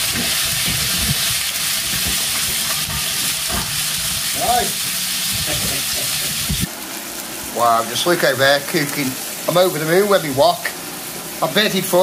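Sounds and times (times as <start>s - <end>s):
chicken frying in oil: 0.0s - 12.0s
utensils knocking on pans: 1.9s - 3.9s.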